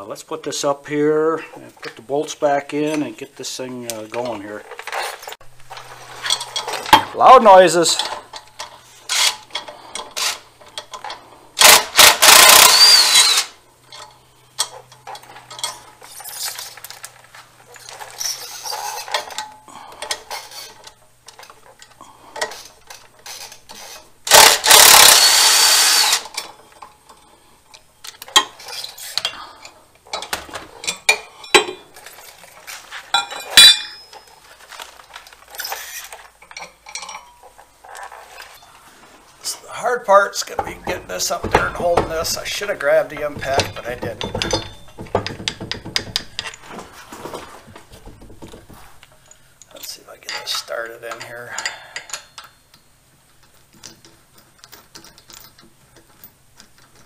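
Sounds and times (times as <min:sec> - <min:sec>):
power drill running: 0:11.6 - 0:13.5, 0:24.3 - 0:26.3
metallic clinks of bolts and tools: 0:33.1 - 0:34.4, 0:35.5 - 0:38.7, 0:43.2 - 0:46.7, 0:49.1 - 0:57.0.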